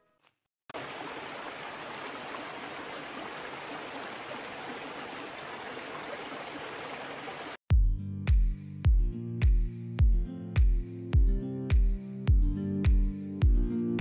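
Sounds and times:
stream water rushing over rocks: 0.8 - 7.6.

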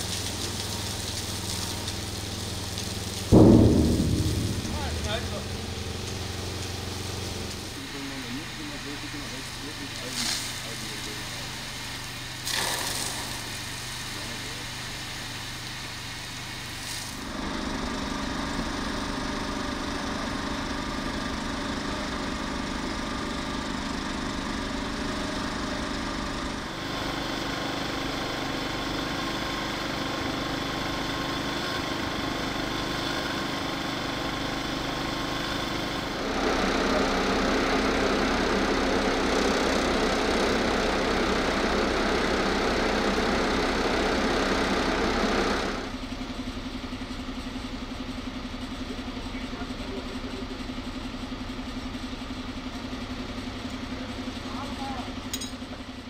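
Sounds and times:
dense rushing noise: 3.3 - 7.1
fire engines idling: 4.8 - 56.0.

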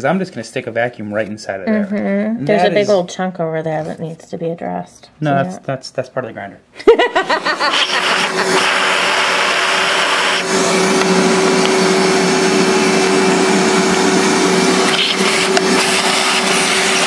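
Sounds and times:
vacuum cleaner running: 7.0 - 17.0.

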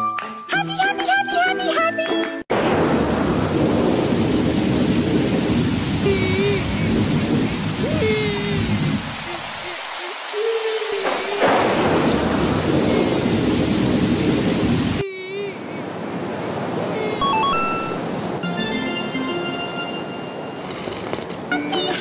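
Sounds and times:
rolling thunder: 2.5 - 9.2, 11.0 - 15.0
heavy rain: 2.5 - 18.8.

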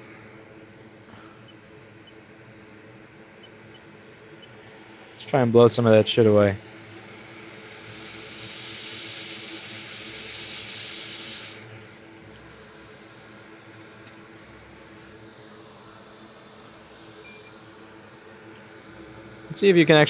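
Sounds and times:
air filter humming: 0.0 - 20.0
air jet hissing: 3.0 - 12.2.

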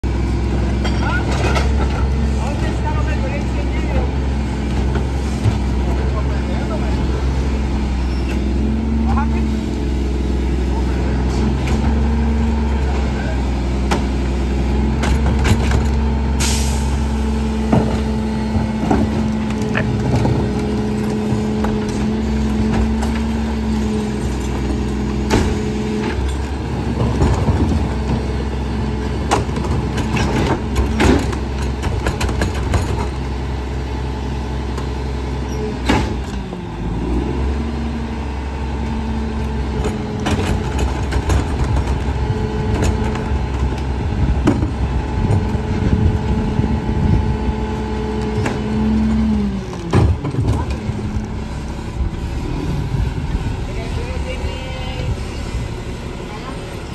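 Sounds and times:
garbage truck engine and hydraulics: 0.0 - 56.9
trash carts knocking against hopper: 14.9 - 16.0, 24.4 - 33.4, 39.7 - 46.4.

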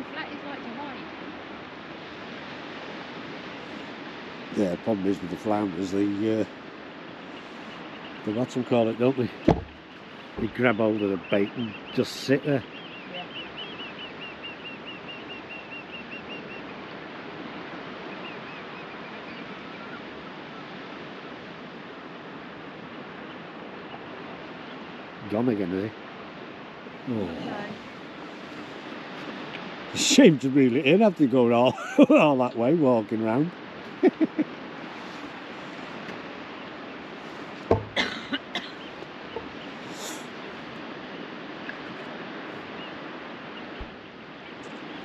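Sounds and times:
surf: 0.0 - 45.0
wind: 0.0 - 45.0
sharp knock: 9.4 - 9.8, 37.7 - 38.1.

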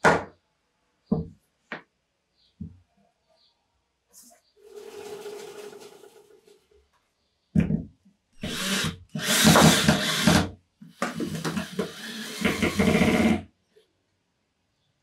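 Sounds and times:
cordless drill into plywood: 8.4 - 13.4.

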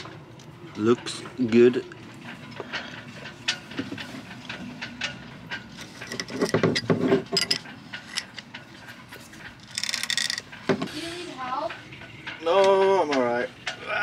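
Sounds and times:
spanners clinking on metal: 0.7 - 14.0.

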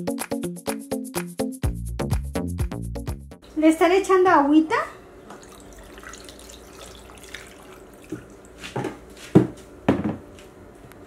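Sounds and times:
water pouring into blender jar: 5.3 - 8.6.

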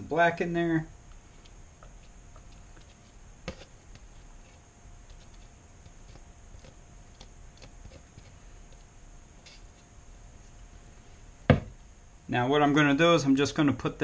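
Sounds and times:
faint steady whine: 0.0 - 14.0
small knock: 11.5 - 11.8.

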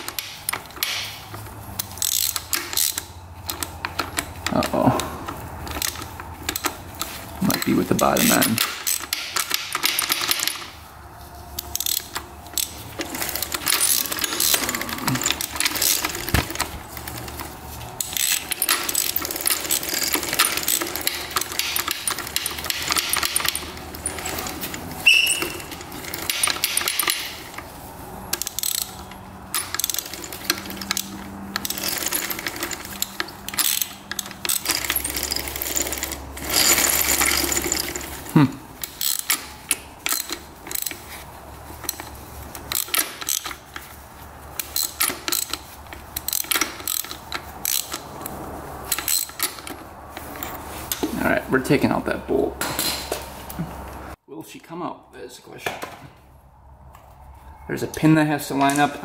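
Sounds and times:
metal tools clicking and clinking: 0.0 - 10.8, 11.4 - 51.8, 57.9 - 59.0
brief high squeak: 25.0 - 25.7.

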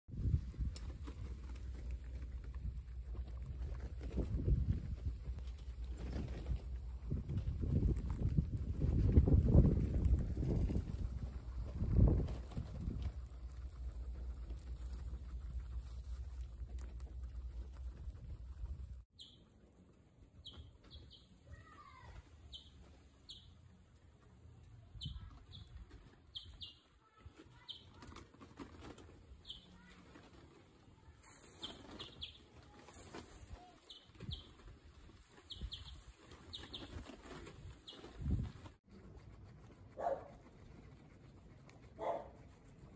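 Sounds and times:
guinea pigs chewing grass: 0.1 - 42.9
guinea pig chirps: 12.9 - 19.5, 20.4 - 21.8, 22.5 - 23.6, 24.9 - 28.3, 28.9 - 30.4, 31.3 - 34.7, 35.3 - 42.9.

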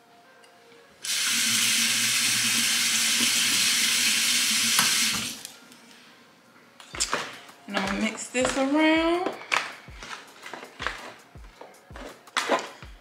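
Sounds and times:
faucet running into sink: 1.1 - 5.4.

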